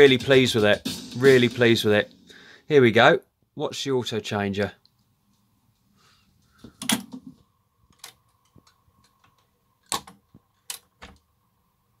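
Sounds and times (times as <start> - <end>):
record changer clacking and clunking: 6.6 - 9.2.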